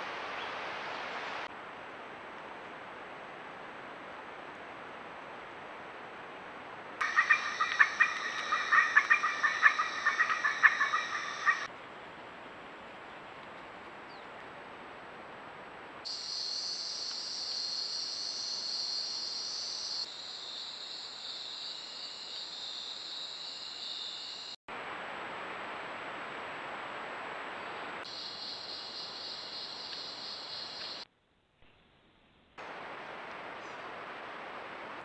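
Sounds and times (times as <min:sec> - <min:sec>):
background hiss: 0:07.0 - 0:11.7, 0:16.0 - 0:32.0
high-pitched insect chorus: 0:07.0 - 0:11.7, 0:16.1 - 0:24.6, 0:28.0 - 0:31.0.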